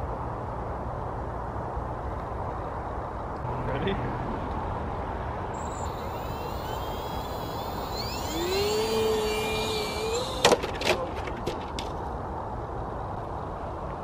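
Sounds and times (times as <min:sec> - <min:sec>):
model plane motor whining: 0:05.6 - 0:10.8.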